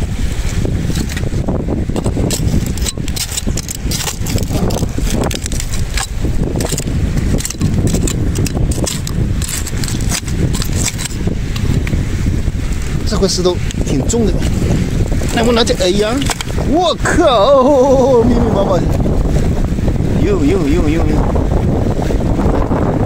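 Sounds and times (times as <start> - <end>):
wind buffeting microphone: 0.0 - 23.0
trowel scraping among shells: 0.8 - 1.3, 1.9 - 12.0, 13.7 - 16.7.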